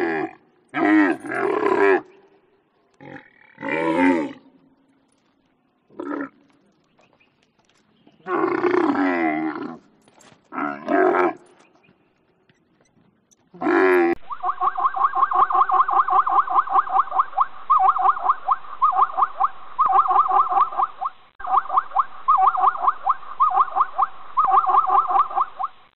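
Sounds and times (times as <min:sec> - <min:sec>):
camels groaning: 0:00.0 - 0:02.3, 0:03.0 - 0:04.7, 0:05.9 - 0:06.7, 0:08.2 - 0:11.7, 0:13.5 - 0:14.2
zebras barking calls: 0:13.5 - 0:25.7.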